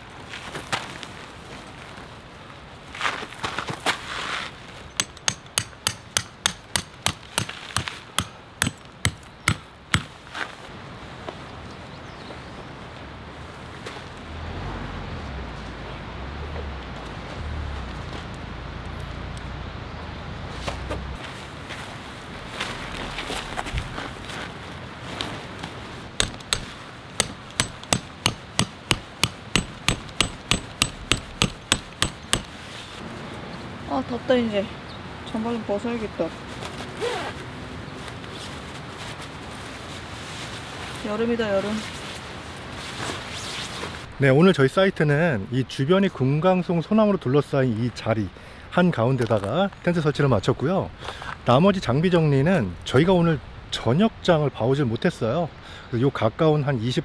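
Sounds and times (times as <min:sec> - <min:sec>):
hammer striking tent peg: 0:05.0 - 0:10.2, 0:26.2 - 0:32.6.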